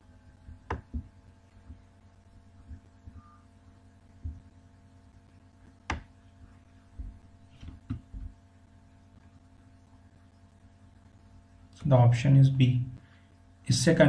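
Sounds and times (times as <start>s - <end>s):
low electrical hum: 0.0s - 14.0s
dull thumps: 0.4s - 1.9s, 4.2s - 4.6s, 6.9s - 8.4s.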